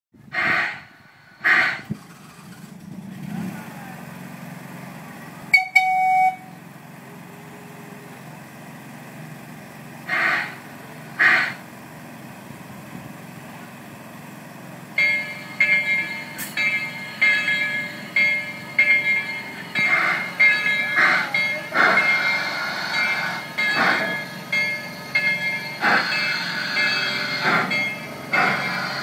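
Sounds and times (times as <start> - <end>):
locomotive whistle: 0.3 - 2.0, 5.5 - 6.5, 10.1 - 10.6
locomotive bell ringing: 5.5 - 6.6, 14.8 - 29.0.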